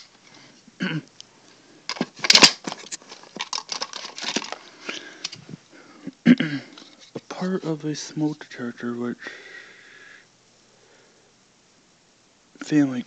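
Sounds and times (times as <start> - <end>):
clicks and clattering of plastic: 1.9 - 4.6
plastic rustle: 1.9 - 5.6.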